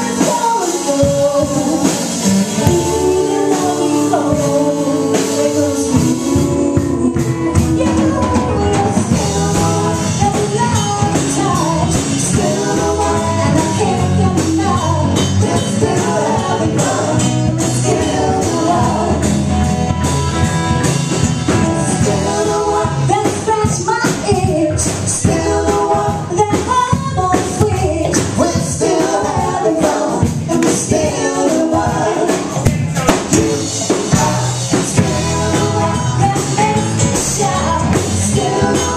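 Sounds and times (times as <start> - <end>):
person singing: 0.0 - 19.3
live band playing: 0.0 - 38.9.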